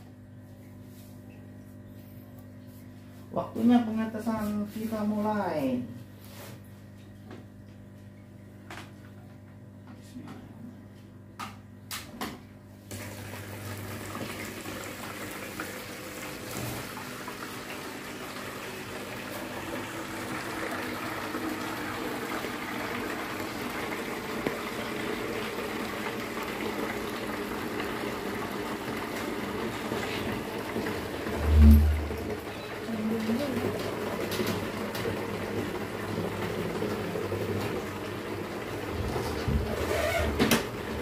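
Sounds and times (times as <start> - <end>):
water churning and bubbling: 30.4 - 32.5.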